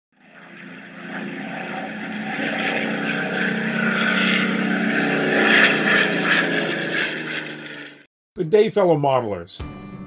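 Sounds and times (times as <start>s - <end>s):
propeller aircraft engine droning: 0.1s - 8.1s.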